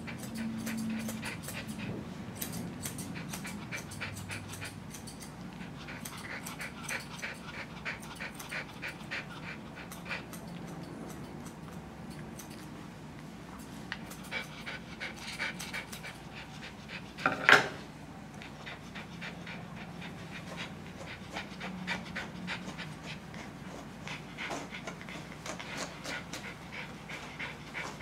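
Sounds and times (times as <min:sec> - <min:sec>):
small dog panting: 0:00.0 - 0:11.8, 0:13.6 - 0:17.4, 0:18.3 - 0:28.0
scissors clicking: 0:00.1 - 0:01.8, 0:02.4 - 0:09.0, 0:09.8 - 0:12.7, 0:13.9 - 0:14.7.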